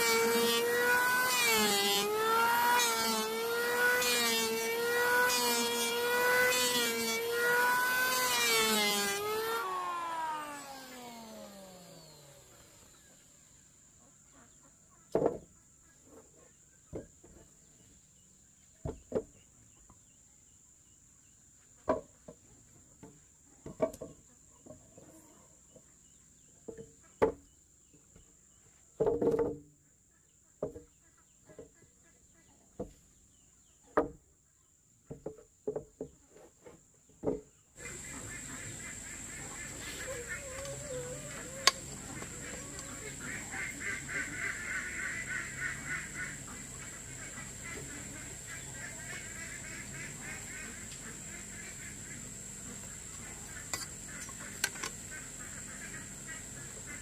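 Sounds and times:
chickens clucking: 0:37.8 - 0:57.0.

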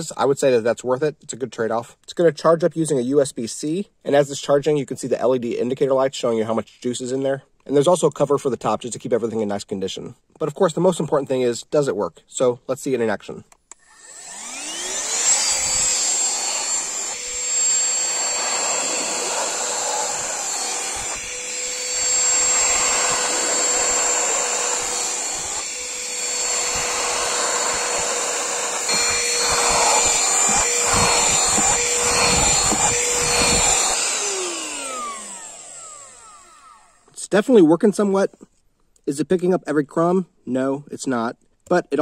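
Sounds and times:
handheld vacuum whining: 0:13.7 - 0:37.2.

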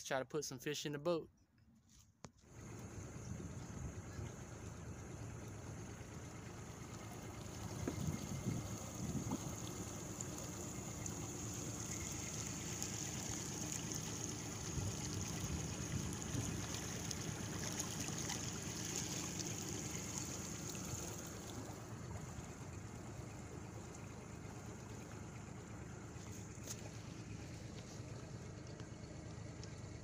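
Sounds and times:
water trickling and lapping: 0:02.5 - 0:30.0.

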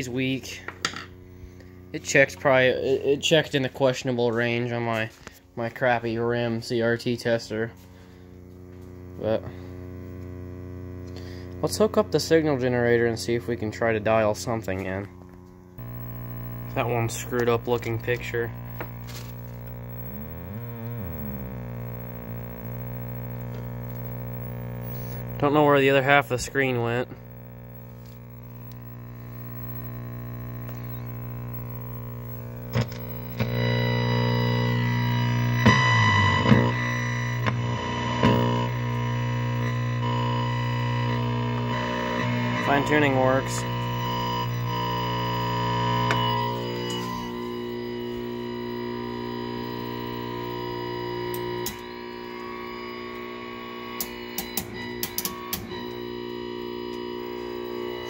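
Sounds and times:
distorted buzzing tone: 0:00.0 - 0:58.0
television electrical hum: 0:00.0 - 0:58.0
clicks: 0:14.6 - 0:52.0, 0:53.2 - 0:56.0
knob clicks: 0:54.0 - 0:55.7.

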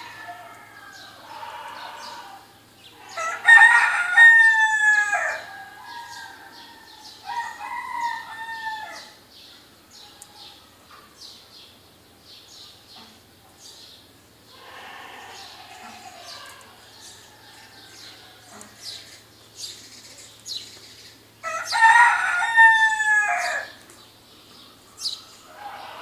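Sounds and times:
rooster crowing: 0:00.0 - 0:09.2, 0:14.6 - 0:19.2, 0:21.4 - 0:23.8, 0:25.4 - 0:26.0
small birds chirping: 0:09.0 - 0:22.0, 0:23.5 - 0:26.0.

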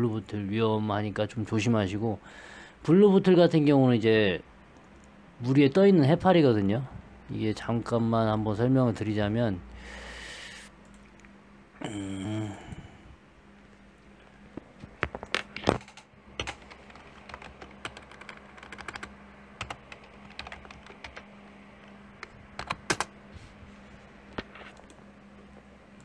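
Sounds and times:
faint steady hum: 0:00.0 - 0:26.0
typing on computer keyboard: 0:15.7 - 0:21.2, 0:22.2 - 0:23.1.

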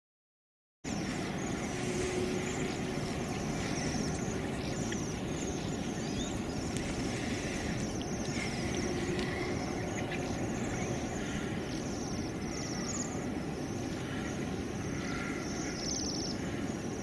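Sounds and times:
high-pitched chirping trills: 0:00.9 - 0:13.4
steady low rumbling noise: 0:00.9 - 0:17.0.

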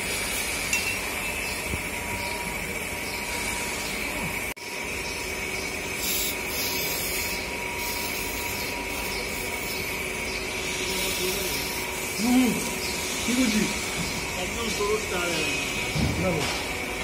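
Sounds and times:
steady background hum: 0:00.0 - 0:17.0
aerosol spray hissing bursts: 0:06.0 - 0:09.8, 0:10.6 - 0:14.0.

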